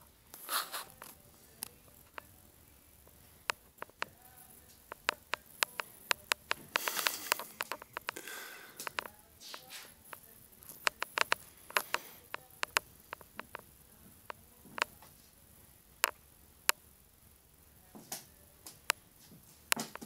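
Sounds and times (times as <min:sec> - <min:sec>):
cat toy clicking and tapping on floor: 0:04.9 - 0:08.2, 0:19.7 - 0:20.0.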